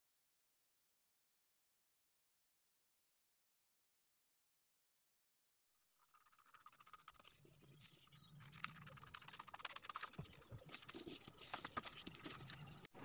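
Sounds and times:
paper rustling: 6.3s - 12.9s.

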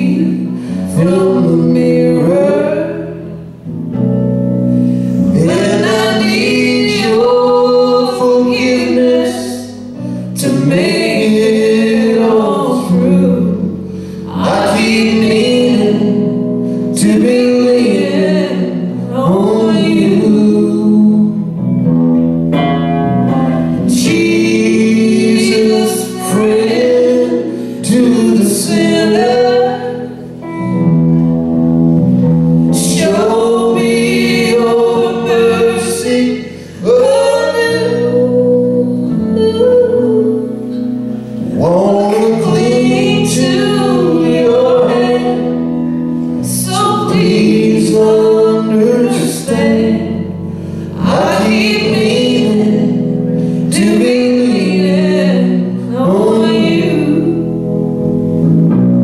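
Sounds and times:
man singing: 0.0s - 3.4s, 5.2s - 21.6s, 23.2s - 30.6s, 32.7s - 57.7s
electric guitar: 0.0s - 59.0s
woman singing: 5.4s - 9.8s, 23.4s - 29.9s, 32.8s - 40.6s, 42.1s - 45.6s, 46.4s - 50.2s.

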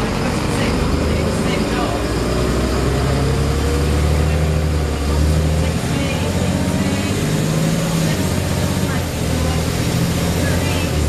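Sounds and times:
bus diesel engine drone: 0.0s - 11.0s
road noise: 0.0s - 11.0s.

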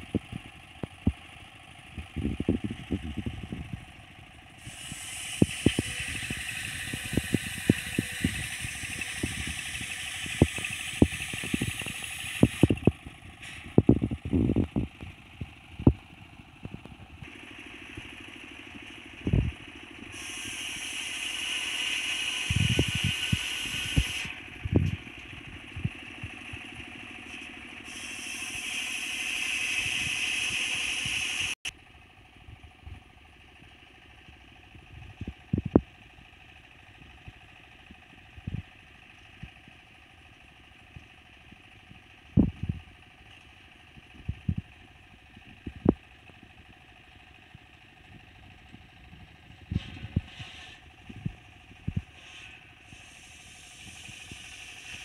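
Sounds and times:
saw engine running: 0.0s - 32.4s, 33.4s - 55.0s
circular saw blade whining through wood: 4.6s - 13.8s, 17.2s - 31.7s, 49.7s - 55.0s.

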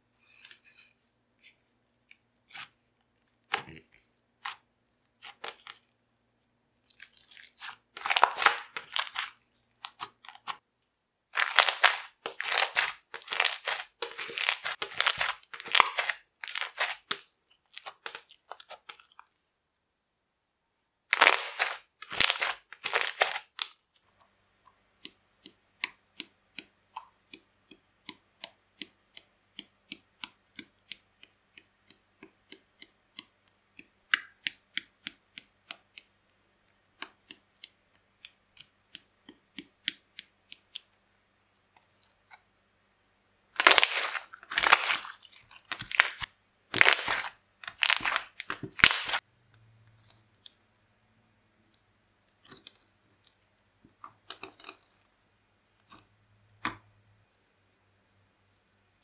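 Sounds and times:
slime squishing and crackling: 6.8s - 10.6s, 11.3s - 19.2s, 21.1s - 23.8s, 43.6s - 49.2s
slime popping: 11.4s - 18.8s, 21.2s - 23.6s, 43.6s - 49.2s.

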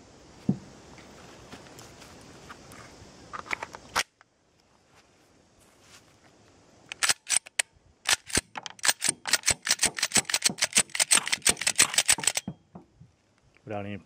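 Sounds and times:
pistol slide racking clicks: 6.9s - 12.5s.

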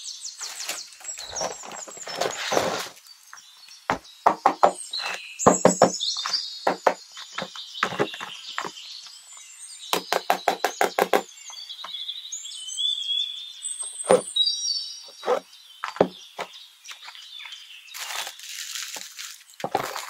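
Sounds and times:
birds chirping: 0.0s - 20.0s
tapping on cardboard box: 3.9s - 8.8s, 10.0s - 11.3s, 14.0s - 14.3s, 15.3s - 16.2s.

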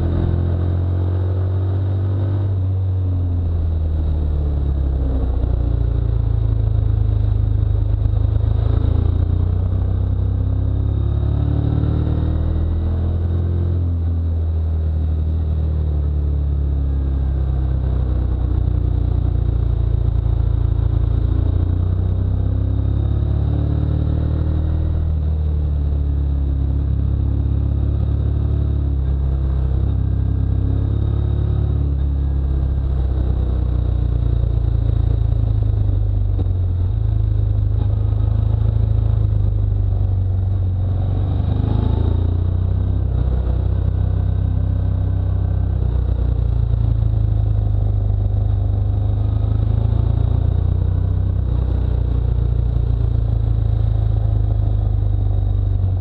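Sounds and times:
motorcycle engine running: 0.0s - 56.0s
wind rumble on microphone: 24.4s - 56.0s.

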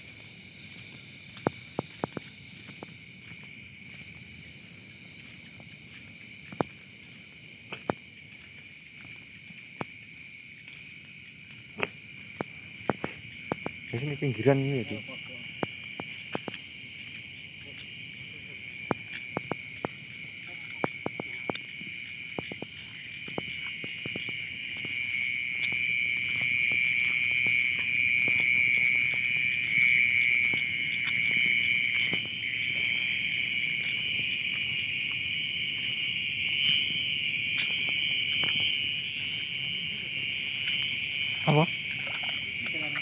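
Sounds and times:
insect chorus shrilling: 10.8s - 43.0s.

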